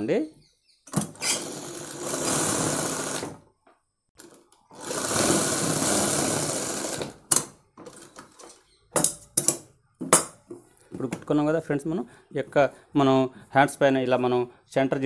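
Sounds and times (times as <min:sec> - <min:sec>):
sewing machine stitching: 0:01.0 - 0:03.4, 0:04.2 - 0:08.2.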